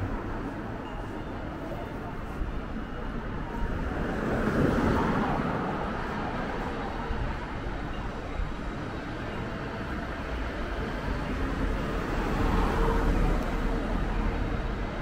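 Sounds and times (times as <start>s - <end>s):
hum of road traffic: 0.0s - 15.0s.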